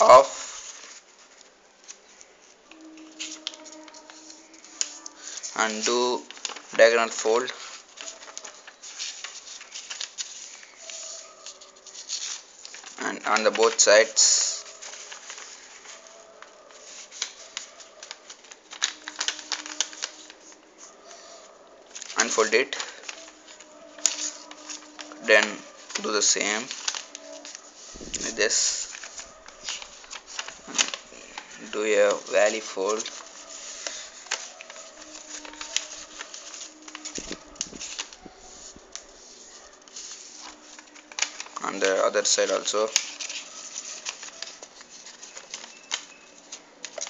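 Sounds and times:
paper folding and rustling: 0:00.0 - 0:47.0.

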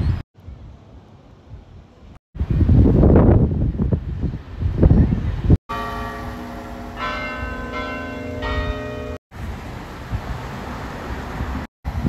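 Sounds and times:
outdoor background noise: 0:00.0 - 0:12.0
church bells ringing: 0:05.7 - 0:09.2.

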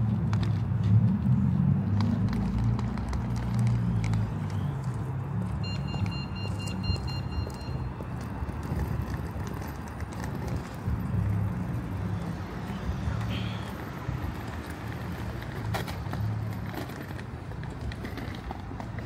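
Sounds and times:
street traffic rumble: 0:00.0 - 0:19.0.

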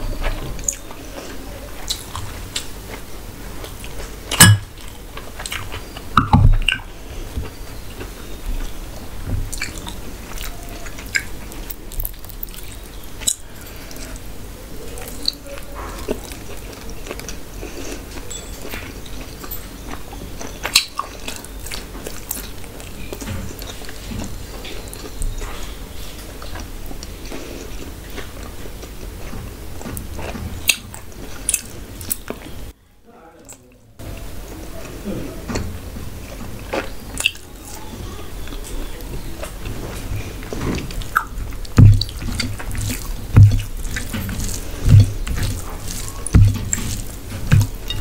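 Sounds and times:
close chewing and biting: 0:00.2 - 0:14.3, 0:14.9 - 0:32.6, 0:34.1 - 0:48.0
wet mouth clicks: 0:41.0 - 0:41.4.

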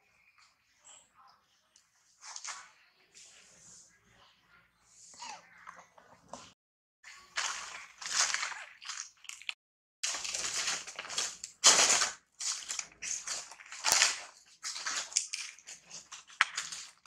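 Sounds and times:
crunching and rustling: 0:07.1 - 0:17.0.

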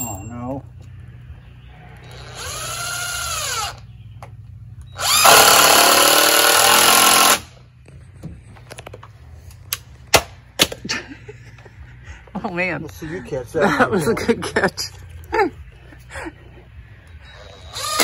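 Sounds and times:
cordless drill driving screws: 0:02.1 - 0:03.8, 0:05.0 - 0:07.5, 0:17.4 - 0:18.0.

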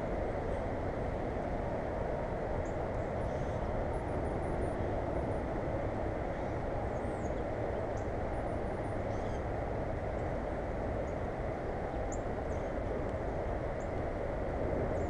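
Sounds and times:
dull rushing noise: 0:00.0 - 0:15.0
faint bird chirps: 0:09.1 - 0:09.4.

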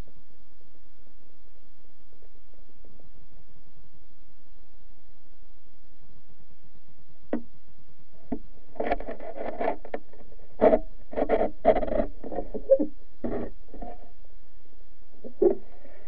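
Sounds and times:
muffled underwater clicks: 0:08.2 - 0:14.0, 0:15.2 - 0:15.7
dull bumps and scrapes: 0:08.3 - 0:14.2, 0:15.2 - 0:15.7.

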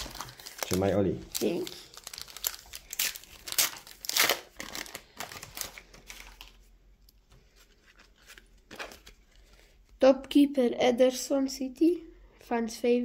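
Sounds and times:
foil packet crinkling and tearing: 0:00.0 - 0:06.7, 0:07.6 - 0:09.6.

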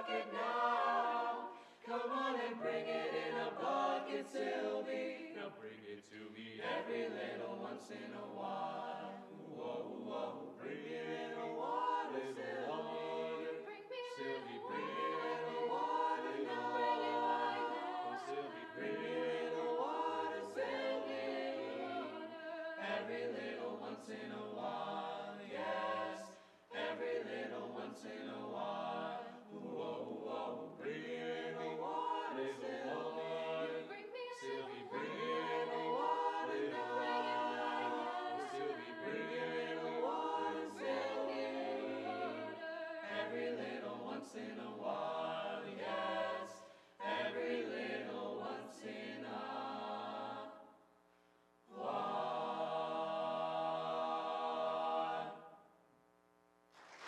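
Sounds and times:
choir singing a cappella: 0:00.0 - 0:50.8, 0:51.7 - 0:55.6.

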